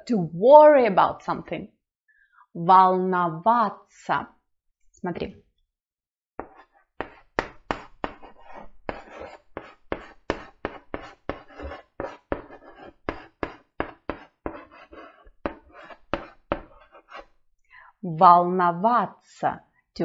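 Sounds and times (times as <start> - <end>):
chalk tapping and scratching: 6.4 - 17.4.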